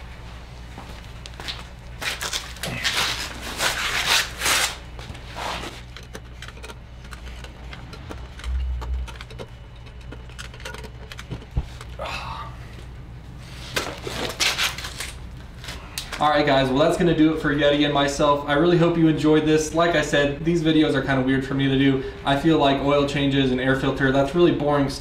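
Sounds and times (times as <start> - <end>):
steady low hum: 0.0 - 25.0
metal scraping and rubbing: 3.0 - 12.0.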